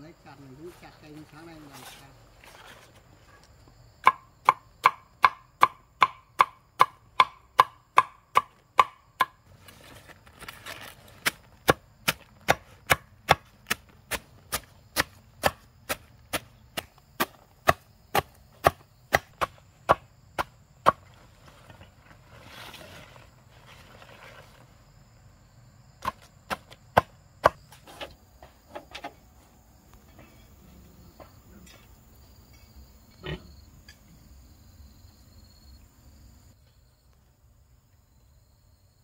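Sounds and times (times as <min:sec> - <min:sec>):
blade chopping on board: 0:11.2 - 0:21.0.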